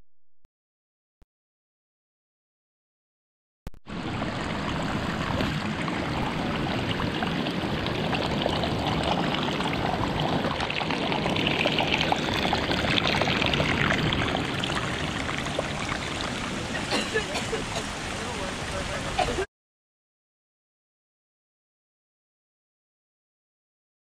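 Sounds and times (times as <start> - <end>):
stream splashing over rocks: 3.9 - 19.4.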